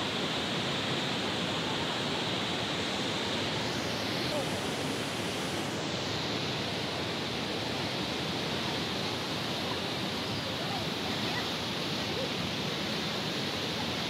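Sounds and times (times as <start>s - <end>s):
rushing running water: 0.0s - 14.0s.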